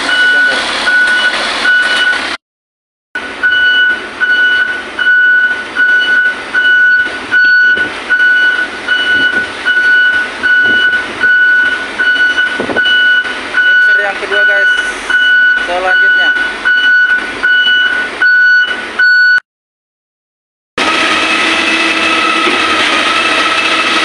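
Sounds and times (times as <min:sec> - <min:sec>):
reversing alarm beeping: 0:00.0 - 0:02.3, 0:03.2 - 0:19.4
truck engine running: 0:00.0 - 0:02.4, 0:03.2 - 0:19.3, 0:20.8 - 0:24.0.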